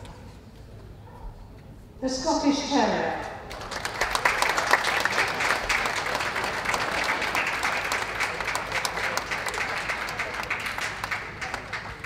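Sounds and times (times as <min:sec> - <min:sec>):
crowd applauding: 0:03.5 - 0:12.0.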